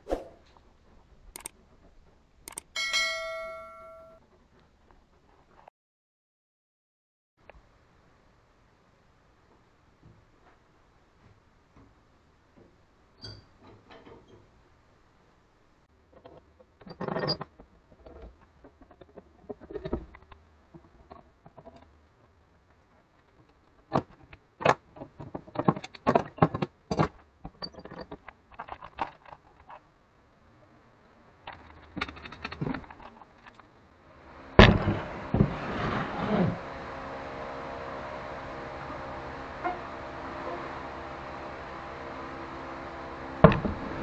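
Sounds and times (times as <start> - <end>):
metal clamps clicking and knocking: 31.5 - 33.7.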